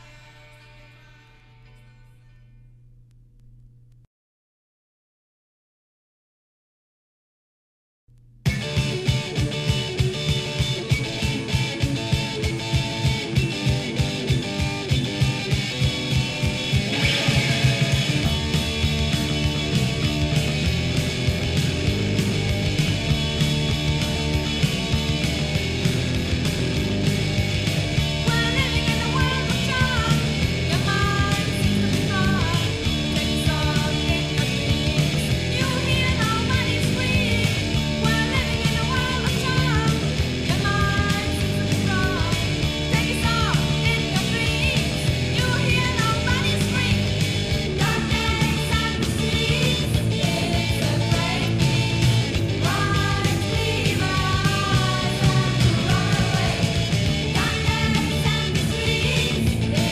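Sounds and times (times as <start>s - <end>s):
drums playing quick beat: 8.4s - 59.9s
electric guitar: 8.4s - 59.9s
person singing: 28.2s - 34.5s, 35.1s - 59.9s.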